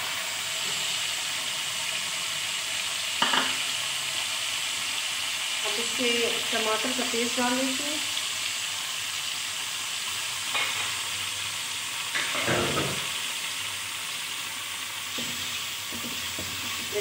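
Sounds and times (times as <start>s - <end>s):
oil sizzling in a pan: 0.0s - 17.0s
spoon knocking against pan: 3.2s - 3.6s.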